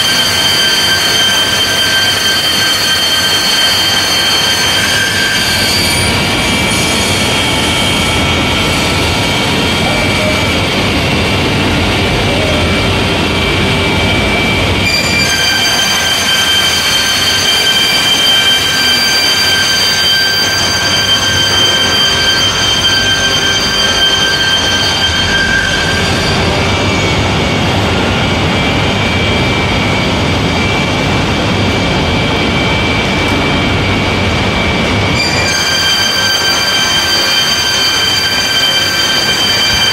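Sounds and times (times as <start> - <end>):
high machine whine: 0.0 - 39.9
low machine hum: 6.3 - 15.0.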